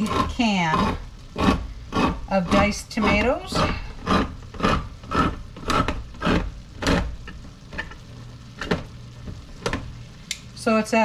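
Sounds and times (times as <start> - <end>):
can opener grinding: 0.0 - 9.8
can opener clicking: 4.1 - 8.0.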